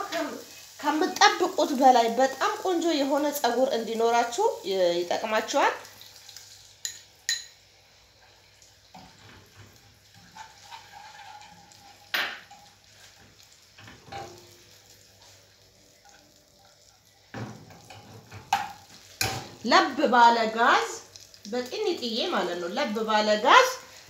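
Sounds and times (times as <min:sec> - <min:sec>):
metal spoon clinking glass bowl: 0:06.8 - 0:07.6
spoon clanking on saucepan: 0:06.8 - 0:07.6, 0:10.3 - 0:12.7, 0:13.8 - 0:14.5, 0:17.3 - 0:19.5.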